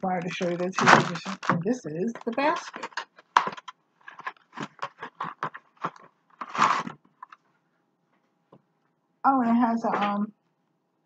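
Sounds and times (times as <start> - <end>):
cardboard box crunching: 0.2 - 7.4.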